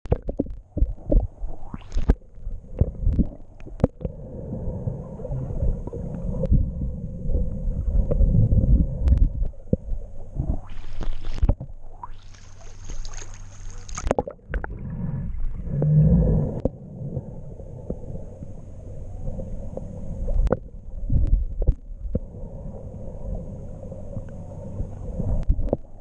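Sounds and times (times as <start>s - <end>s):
sharp underwater knocks and clicks: 0.0s - 2.2s, 2.8s - 4.1s, 12.8s - 14.7s, 20.4s - 22.2s
muffled underwater rumbling: 0.0s - 26.0s
splashing water hiss: 12.2s - 14.1s.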